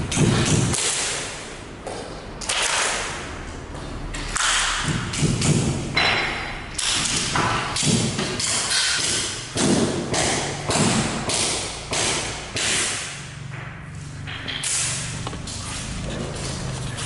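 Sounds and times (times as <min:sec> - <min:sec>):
sharp knocks echoing in a room: 0:00.0 - 0:16.7.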